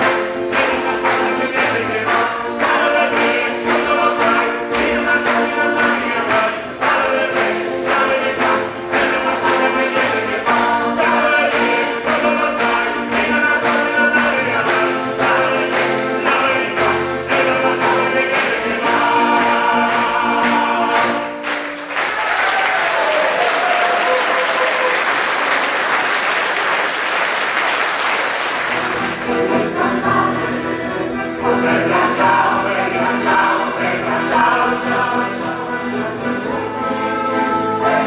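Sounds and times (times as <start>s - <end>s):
audience applauding: 0.0s - 4.3s, 21.0s - 29.4s
mixed choir singing: 0.0s - 21.4s, 28.8s - 38.0s
accordion: 0.0s - 22.0s, 27.5s - 38.0s
acoustic guitar: 0.0s - 22.2s, 27.8s - 38.0s.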